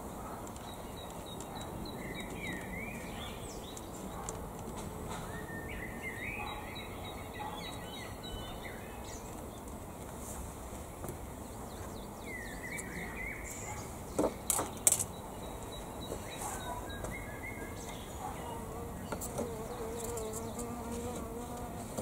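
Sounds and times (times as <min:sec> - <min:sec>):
songbirds chirping: 0:00.0 - 0:22.0
flying insect buzzing: 0:18.6 - 0:22.0.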